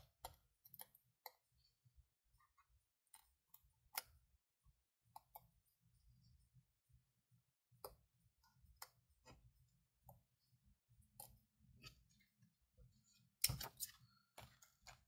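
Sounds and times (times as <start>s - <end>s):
clicks and taps of crafting: 13.4s - 15.0s.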